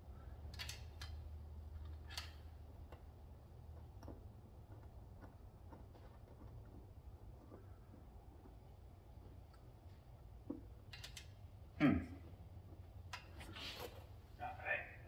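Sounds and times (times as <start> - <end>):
hands clicking and tapping hardware: 0.5 - 1.2, 1.8 - 9.7, 10.4 - 11.4.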